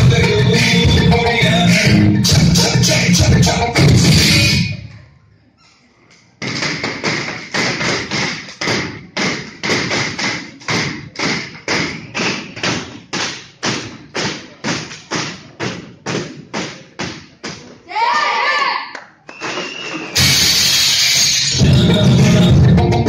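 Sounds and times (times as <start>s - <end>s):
heavy thuds with echo: 6.4s - 17.7s.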